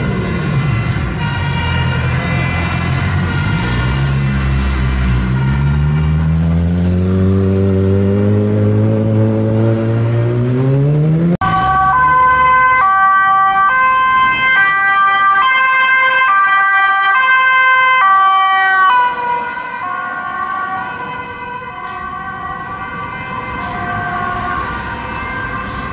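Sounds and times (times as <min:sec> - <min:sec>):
vehicle engine accelerating: 0:02.1 - 0:12.6
police siren two-tone: 0:11.4 - 0:25.8.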